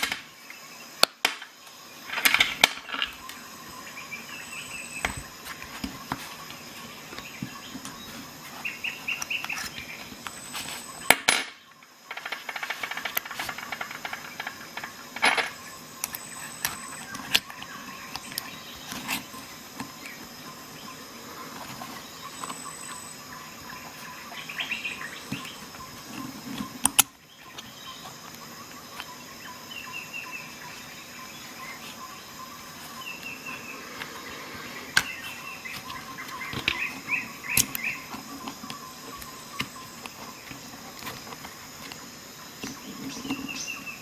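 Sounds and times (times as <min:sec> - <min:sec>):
faint steady hum: 0:00.0 - 0:44.0
metal tools clicking and knocking: 0:11.1 - 0:16.2.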